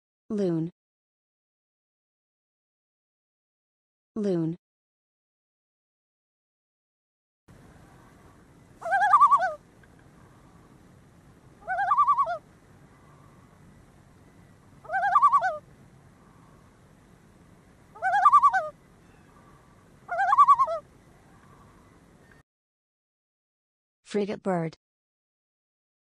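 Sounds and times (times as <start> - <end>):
loon calling: 8.8 - 10.7, 11.6 - 13.6, 14.8 - 16.7, 17.9 - 21.9.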